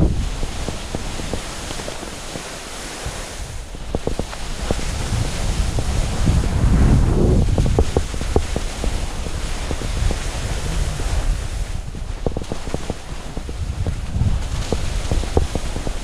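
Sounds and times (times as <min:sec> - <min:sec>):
skis scraping snow: 0:00.0 - 0:06.7
wind over microphone: 0:00.0 - 0:16.0.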